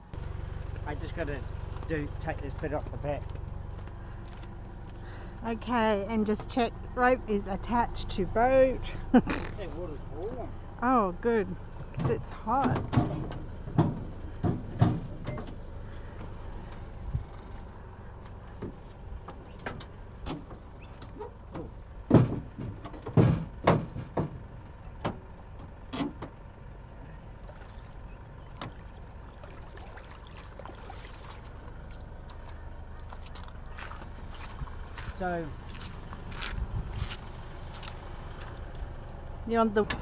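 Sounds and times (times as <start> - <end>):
steady low rumble: 0.0 - 40.0
clunks of dinghy being handled: 11.8 - 17.6, 18.2 - 26.4
loud thuds: 21.6 - 24.5.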